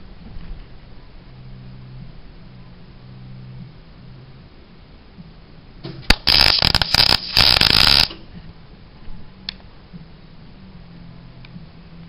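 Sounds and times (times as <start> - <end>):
welder click: 6.1 - 8.2
welding arc crackling: 6.1 - 8.2.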